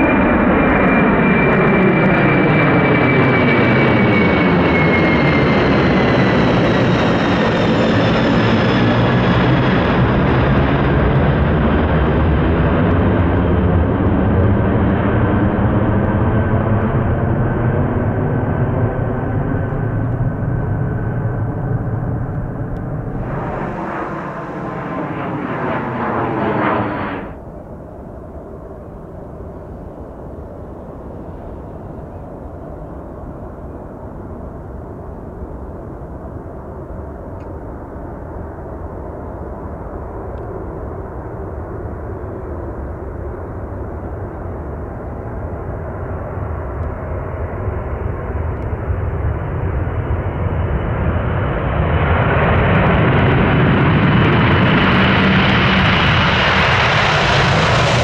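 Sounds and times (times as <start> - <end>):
jet engines rumbling: 0.0 - 58.0
jet engine high hiss: 22.0 - 27.6.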